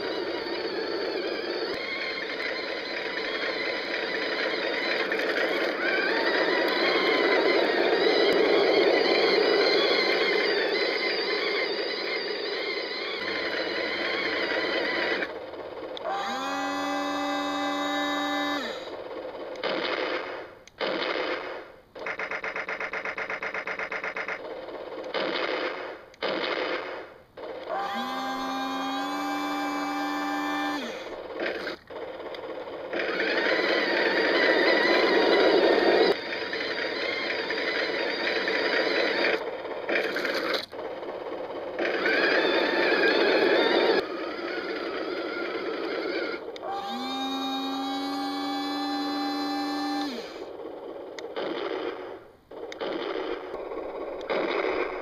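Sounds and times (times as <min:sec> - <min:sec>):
toy tank motors whining: 0:00.0 - 0:55.0.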